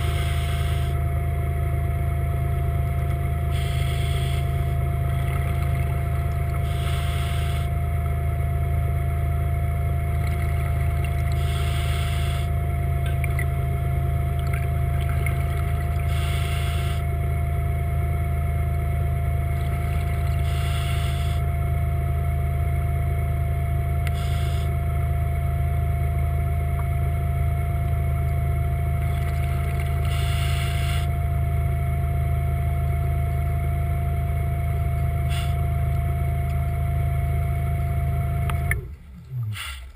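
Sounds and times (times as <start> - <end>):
regulator bubbles hissing: 0.0 - 1.2, 2.2 - 8.0, 9.8 - 17.2, 19.4 - 21.5, 24.0 - 24.8, 28.6 - 31.2, 35.1 - 37.4, 38.6 - 39.9
underwater motor humming: 0.0 - 39.9.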